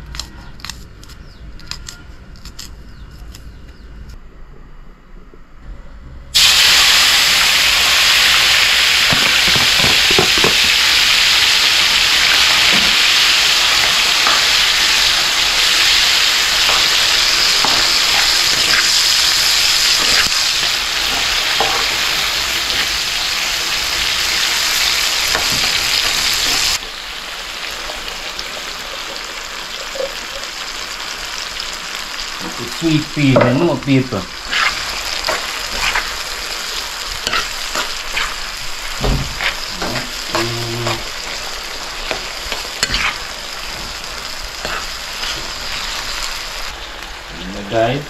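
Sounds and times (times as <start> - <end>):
vegetables sizzling in hot oil: 6.4 - 48.0
spoon knocking and scraping pan: 9.1 - 10.8.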